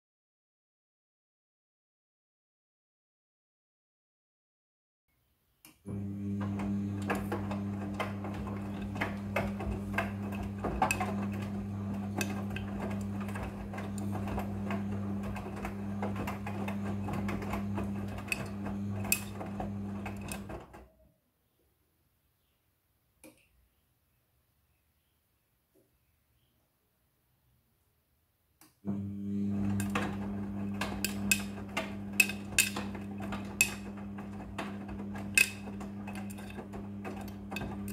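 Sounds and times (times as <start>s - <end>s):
washing machine motor humming: 5.8s - 21.0s, 28.8s - 37.9s
knocks and clicks: 6.4s - 20.8s, 29.6s - 37.9s.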